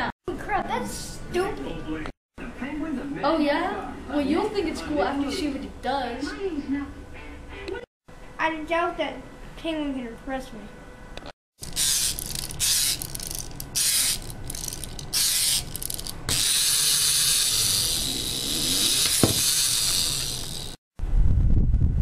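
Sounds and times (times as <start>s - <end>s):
clockwork key ratcheting: 11.6s - 20.8s
toy spring mechanism running: 11.6s - 20.8s.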